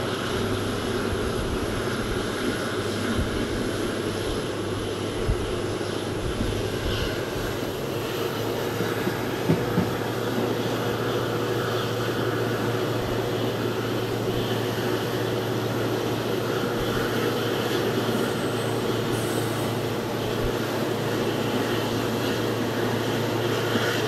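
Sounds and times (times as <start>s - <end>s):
train wheel clacks: 0.0s - 12.9s
train wheels rumbling on rail: 0.0s - 24.0s.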